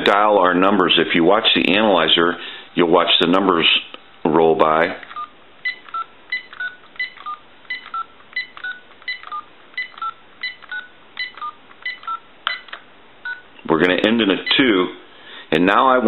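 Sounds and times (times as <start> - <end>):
touch-tone dialing beeps: 5.0 - 13.5.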